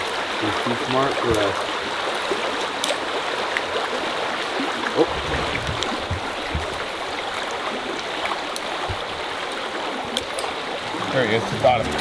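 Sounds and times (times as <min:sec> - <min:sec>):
soft low thumps: 0:05.0 - 0:07.2.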